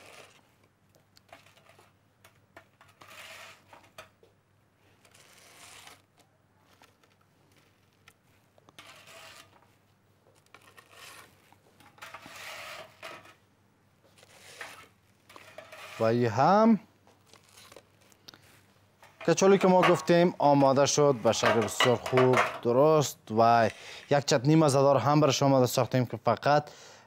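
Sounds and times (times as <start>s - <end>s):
spatula scraping on ceramic plate: 2.8s - 3.7s, 8.8s - 9.5s, 11.9s - 13.4s, 14.3s - 16.1s.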